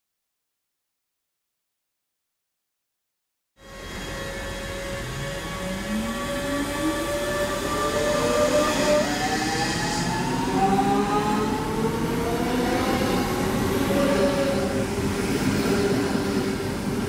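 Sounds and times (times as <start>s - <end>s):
electric train motors whining: 3.6s - 17.0s.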